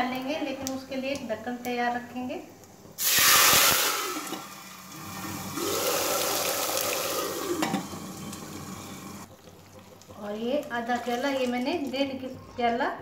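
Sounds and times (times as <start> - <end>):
hissing and bubbling: 2.8 - 11.9
steam hissing and spattering: 3.0 - 7.7.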